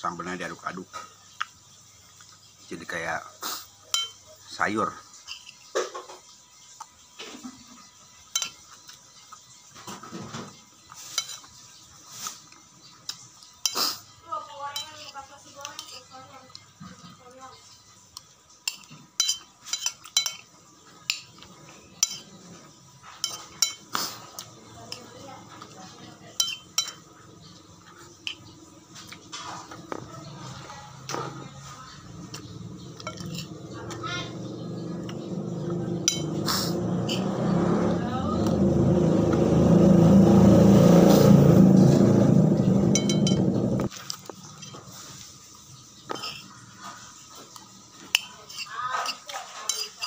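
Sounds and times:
metal spoon clinking on a plate: 0:03.9 - 0:04.3, 0:05.2 - 0:05.9, 0:08.3 - 0:09.0, 0:10.9 - 0:11.6, 0:14.7 - 0:16.1, 0:18.6 - 0:27.5, 0:28.1 - 0:30.0, 0:32.2 - 0:35.3, 0:35.9 - 0:37.3, 0:42.9 - 0:43.5, 0:44.2 - 0:45.0, 0:46.1 - 0:46.6, 0:47.5 - 0:50.0
vehicle engine running: 0:29.9 - 0:43.9.

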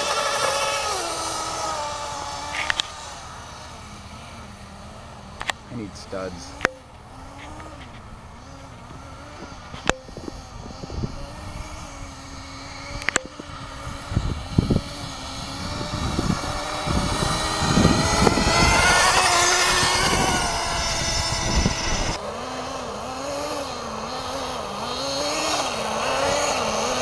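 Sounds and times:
small engine buzzing: 0:00.0 - 0:27.0
low rumbles: 0:00.7 - 0:22.2
sharp clicks: 0:13.0 - 0:13.6.

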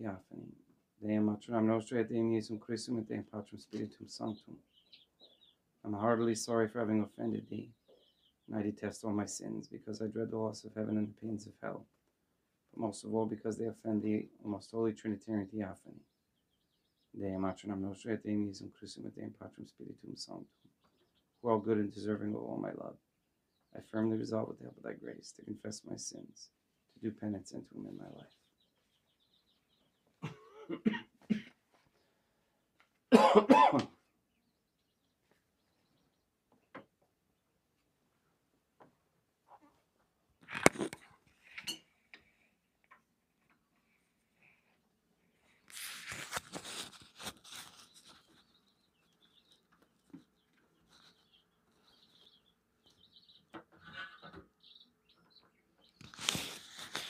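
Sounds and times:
man coughing: 0:30.2 - 0:31.6, 0:33.1 - 0:33.9
rustling and handling noises: 0:38.7 - 0:41.8, 0:45.6 - 0:52.4, 0:55.9 - 0:57.0.

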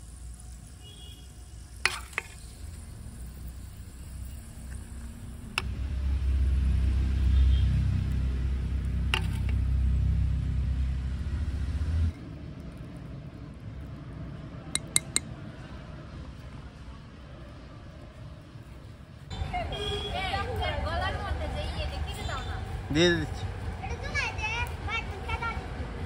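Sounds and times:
low rumble: 0:04.8 - 0:14.4
spoon clicking on clay pot: 0:14.8 - 0:15.3.

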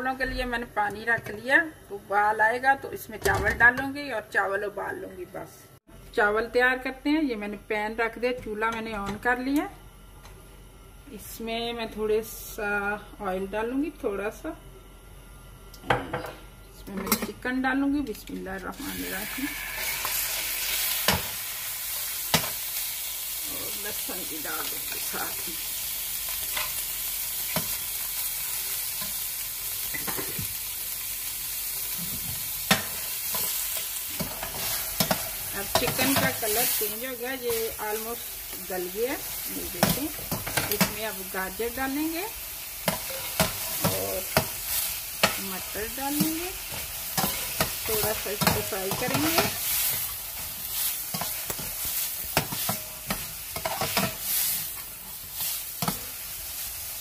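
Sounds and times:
chicken sizzling in hot oil: 0:18.7 - 0:57.0
metal spatula scraping a pan: 0:18.9 - 0:20.8.

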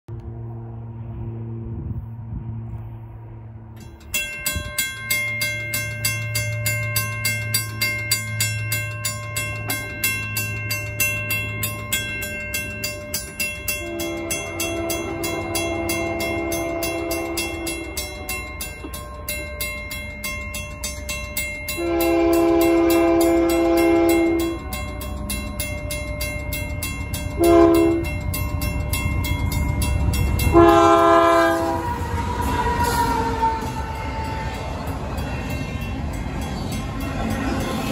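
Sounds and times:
mechanical crossing bell ringing: 0:03.8 - 0:37.9
locomotive air horn blast: 0:13.8 - 0:18.3, 0:21.8 - 0:24.6, 0:27.4 - 0:28.1, 0:30.5 - 0:34.8.

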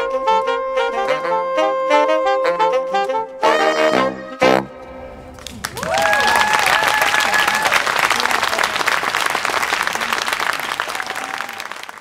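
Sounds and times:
audience applauding: 0:05.4 - 0:12.0
person whooping: 0:05.7 - 0:08.7, 0:10.8 - 0:12.0.

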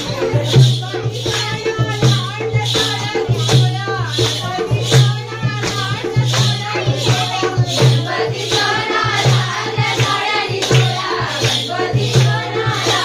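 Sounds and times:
group of women singing: 0:00.0 - 0:13.0
hand clapping: 0:03.4 - 0:13.0.

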